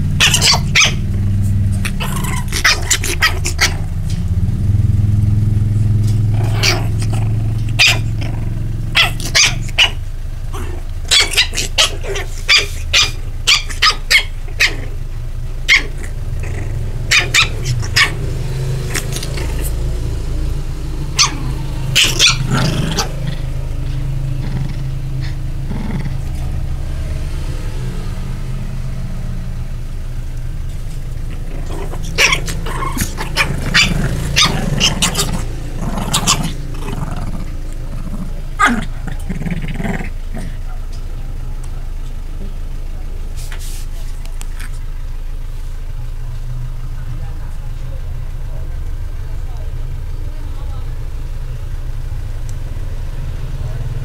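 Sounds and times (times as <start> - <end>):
puppies yipping: 0.0 - 1.2, 1.8 - 3.8, 6.5 - 8.3, 8.9 - 15.0, 15.7 - 16.2, 17.0 - 19.8, 21.1 - 26.2, 30.8 - 37.9
steady low hum: 0.0 - 54.0.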